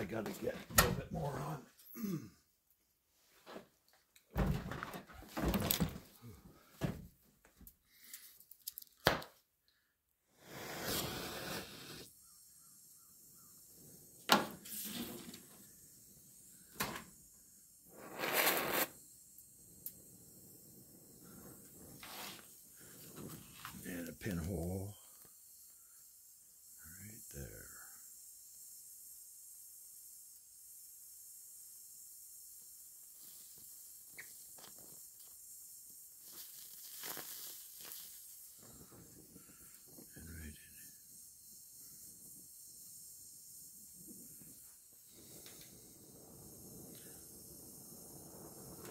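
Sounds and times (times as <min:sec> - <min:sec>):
weld puddle pops and crackles: 0:08.6 - 0:09.4
welding bursts on sheet metal: 0:14.2 - 0:19.5, 0:21.2 - 0:24.9, 0:32.2 - 0:48.9.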